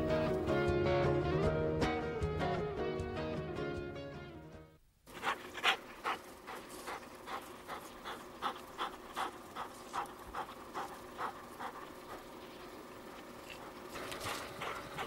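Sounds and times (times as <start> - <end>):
dog panting: 5.1 - 15.0.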